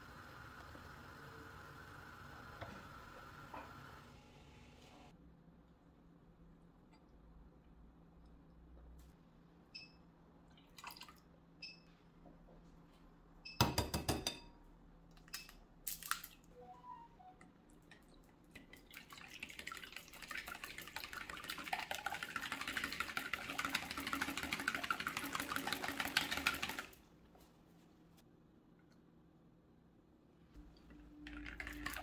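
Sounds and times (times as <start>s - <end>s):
whisk beating in glass bowl: 19.4s - 26.9s.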